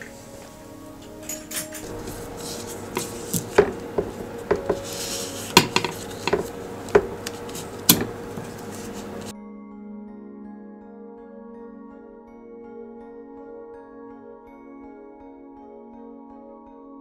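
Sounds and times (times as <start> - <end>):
tools clinking on bicycle parts: 1.0 - 9.3.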